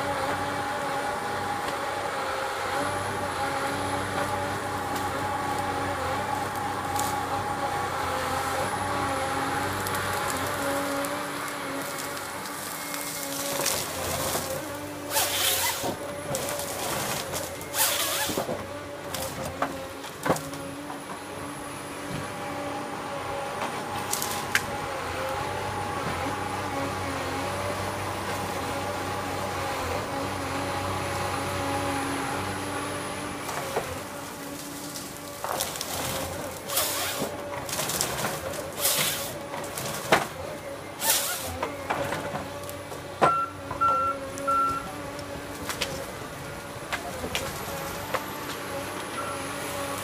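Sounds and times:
diesel and hydraulics humming: 0.0s - 50.0s
wood crackling and snapping: 6.4s - 7.3s, 9.0s - 21.2s, 23.6s - 25.4s, 33.4s - 40.4s, 41.0s - 49.1s
sharp cracks of wood: 34.6s - 40.4s.

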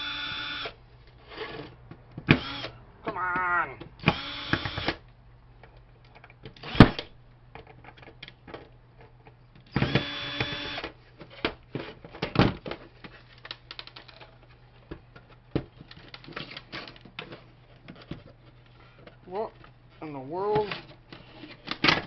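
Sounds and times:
cordless drill whirring: 0.0s - 0.8s, 2.3s - 2.7s, 4.0s - 5.0s, 9.7s - 10.9s.

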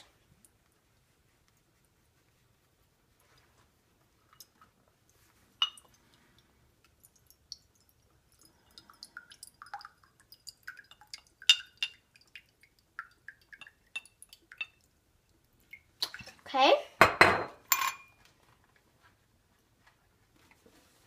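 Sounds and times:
glass clinks and taps: 5.6s - 5.9s, 17.0s - 18.1s
liquid trickling into glass: 6.9s - 15.0s.

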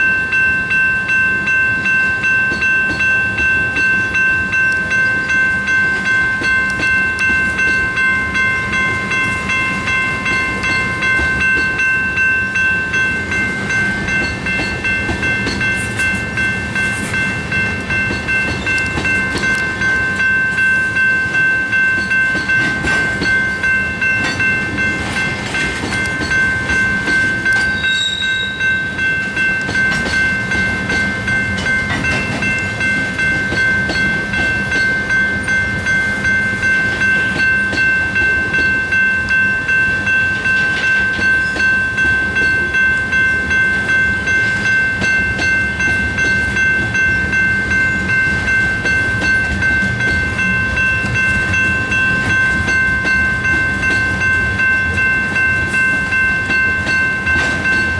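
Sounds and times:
freight train rumbling: 0.0s - 57.9s
railroad crossing bells ringing: 0.0s - 57.9s.

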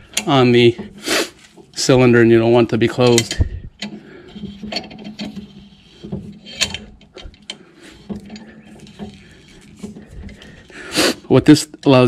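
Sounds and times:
metallic clicks and knocks of clamp: 0.1s - 0.9s, 3.0s - 10.5s.

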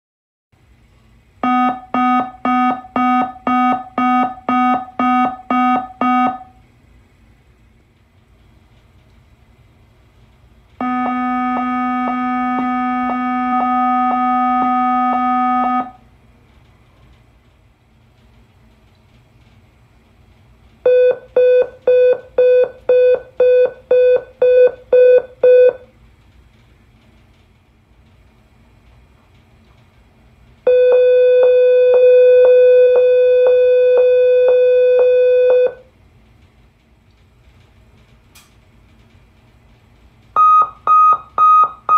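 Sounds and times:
security gate alarm tone: 1.4s - 6.6s, 10.8s - 16.0s, 30.7s - 35.9s
pulsing electronic alarm tone: 10.8s - 16.0s.

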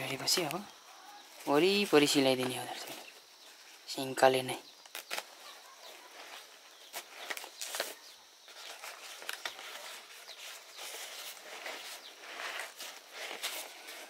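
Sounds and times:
leaves rustling and crackling: 0.0s - 14.0s.

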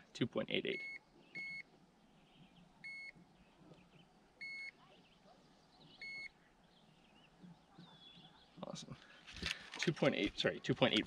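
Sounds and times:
digital scale beeping: 0.8s - 1.6s, 4.4s - 4.7s.

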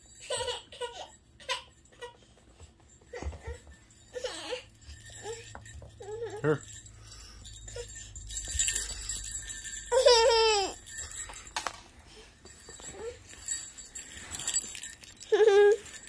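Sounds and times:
small metal bells shaken: 0.0s - 16.0s.

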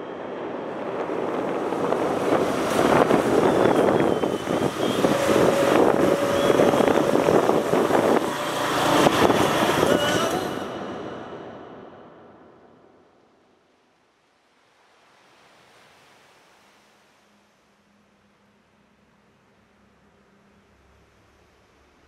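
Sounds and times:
wind on microphone: 0.0s - 11.9s
road traffic: 0.0s - 13.0s.

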